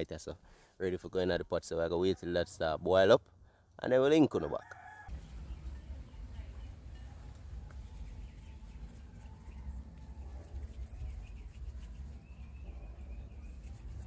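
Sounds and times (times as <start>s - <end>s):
birds calling: 5.1s - 14.0s.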